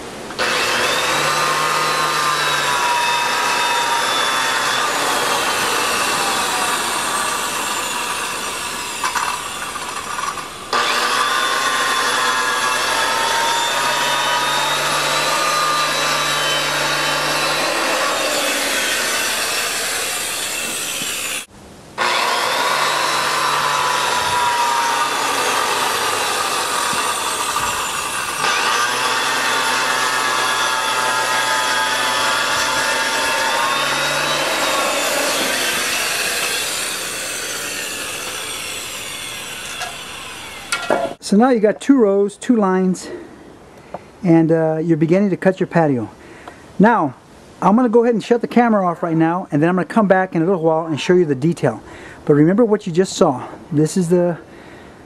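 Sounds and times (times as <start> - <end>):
masonry saw grinding concrete: 0.4 - 41.4.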